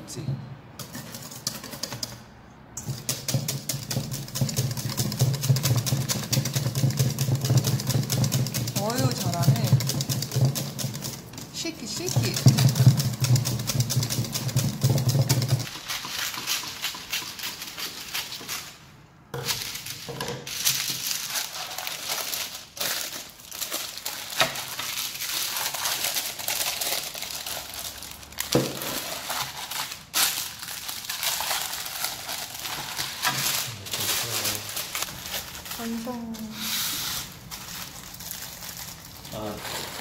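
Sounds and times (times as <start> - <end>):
whisk scraping metal bowl: 2.8 - 18.5
parchment paper rustling: 2.9 - 40.0.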